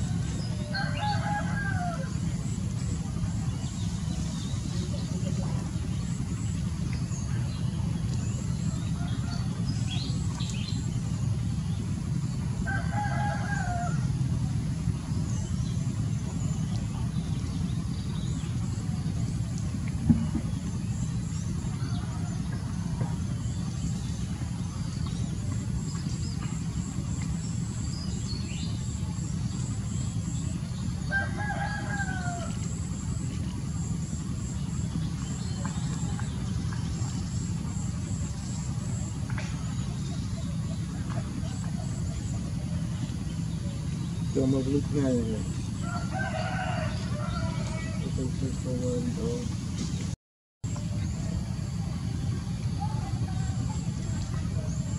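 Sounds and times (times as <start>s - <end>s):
steady low rumble: 0.0s - 54.9s
rooster crowing: 0.6s - 2.2s, 12.6s - 14.2s, 31.1s - 32.6s, 45.8s - 48.1s.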